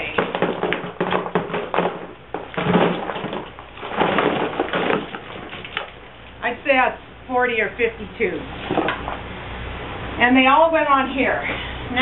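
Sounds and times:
paint tubes crinkling and crunching: 0.0 - 6.4.

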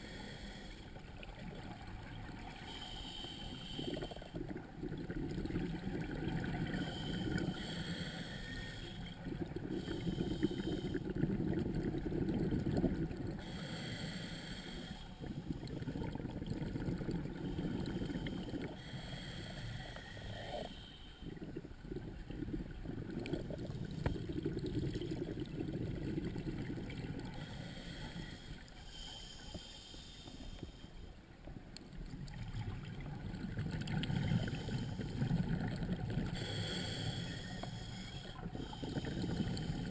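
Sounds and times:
regulator hiss on inhale: 0.0 - 1.0, 2.6 - 4.5, 6.6 - 11.2, 13.3 - 15.8, 17.4 - 21.8, 23.4 - 25.2, 27.0 - 31.2, 34.0 - 35.5, 36.2 - 39.9
exhaled bubbles rushing: 4.4 - 7.5, 9.2 - 13.4, 15.2 - 18.8, 21.2 - 27.3, 32.1 - 36.4.

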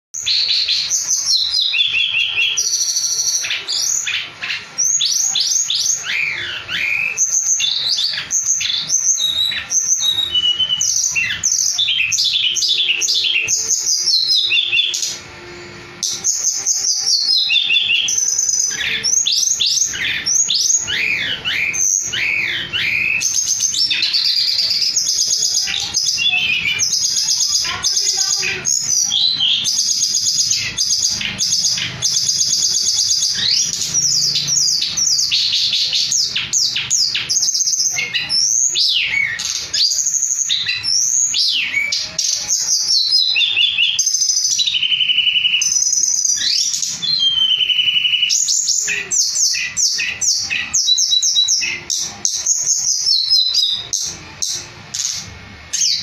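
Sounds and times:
songbird singing: 0.2 - 56.0.

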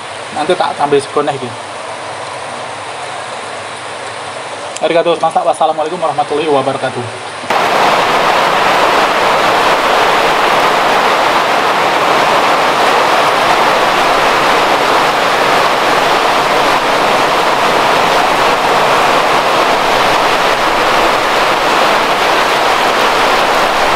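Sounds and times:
heavy rain on paving stones: 0.0 - 23.9.

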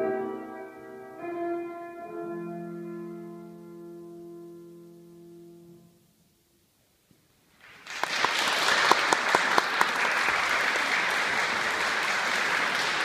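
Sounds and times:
audience applauding: 7.6 - 13.0.

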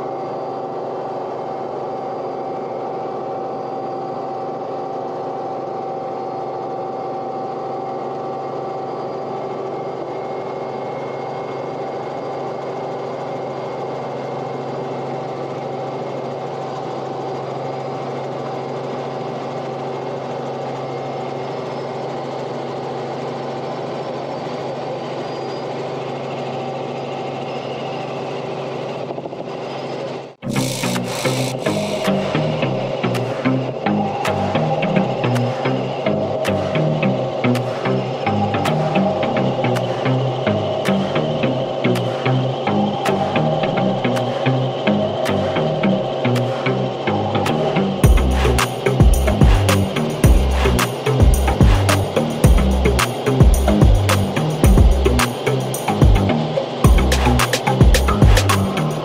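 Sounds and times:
steady engine drone: 0.0 - 59.0
music: 30.4 - 59.0.

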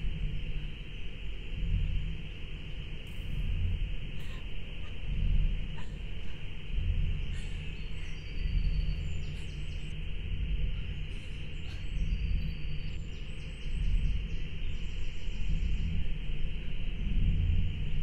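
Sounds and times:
steady hiss: 0.0 - 12.2
low fluctuating rumble: 0.0 - 18.0
small birds chirping: 0.4 - 10.0, 10.7 - 17.4.

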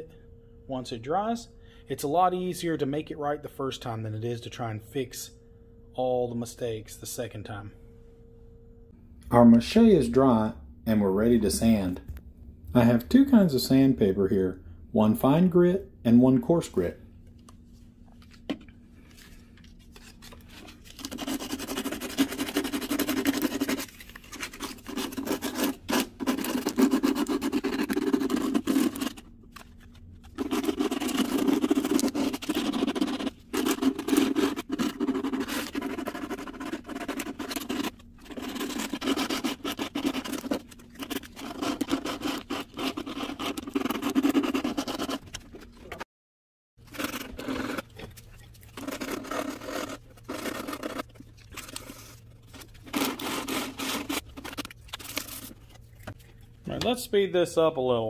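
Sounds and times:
sandpaper rubbing: 20.9 - 29.2, 30.4 - 45.4, 48.8 - 51.0, 52.9 - 54.2.

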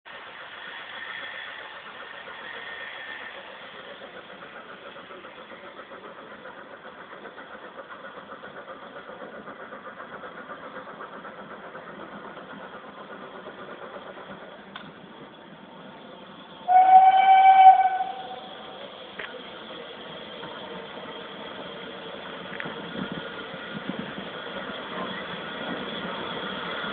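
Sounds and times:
steam locomotive exhaust beats: 0.1 - 26.9.

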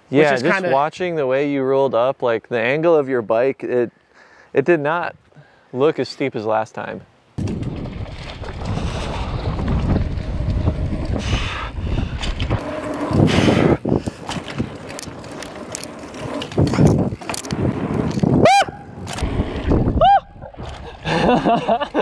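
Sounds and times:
bike tyres rumbling over dirt: 7.4 - 20.8
wind on microphone: 7.4 - 21.6.

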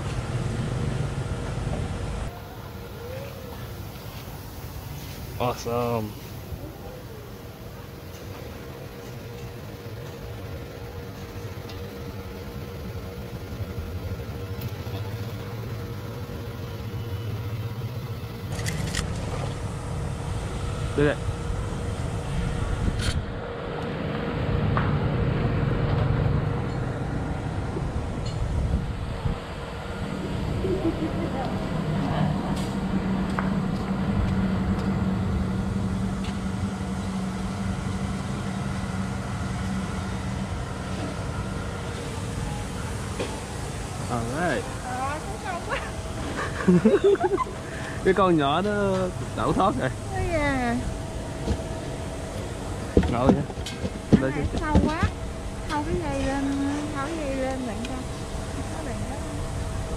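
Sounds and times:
engine running low rumble: 0.0 - 59.9
low motor hum: 0.0 - 59.9
faint constant tone: 26.6 - 59.9.

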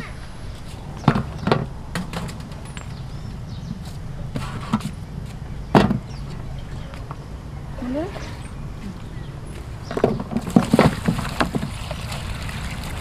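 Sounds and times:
sharp knocks: 5.7 - 6.1.

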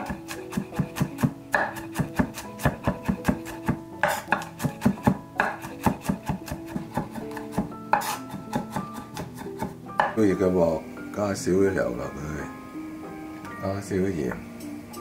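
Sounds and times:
knife chopping on wooden board: 0.0 - 10.2
background music: 0.0 - 15.0.

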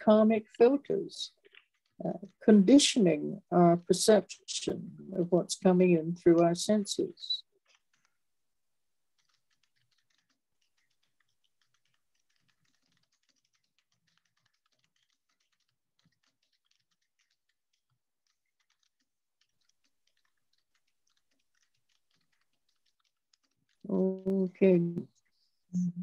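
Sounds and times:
typing on a computer keyboard: 1.4 - 2.4, 7.6 - 8.2, 9.1 - 25.3.

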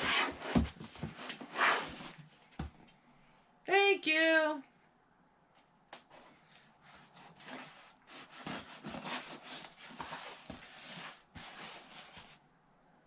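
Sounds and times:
knife sawing through cardboard: 6.9 - 12.3.

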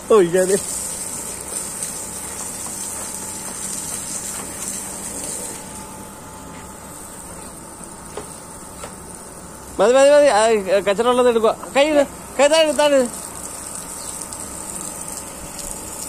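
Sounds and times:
garden hose spraying water: 0.0 - 16.0.

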